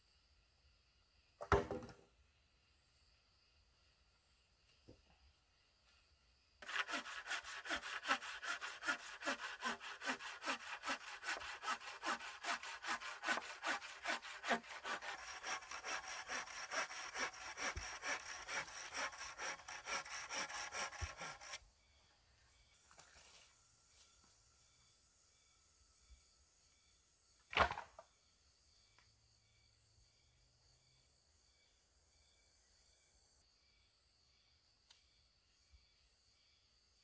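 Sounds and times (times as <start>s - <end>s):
hand saw cutting wood: 6.6s - 21.6s.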